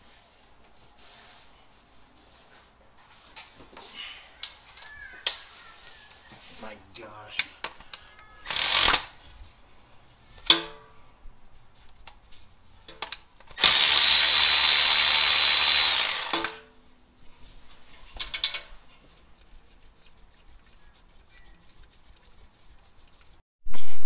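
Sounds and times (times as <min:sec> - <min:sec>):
cordless power tool whining: 0:08.4 - 0:09.1, 0:13.5 - 0:16.6.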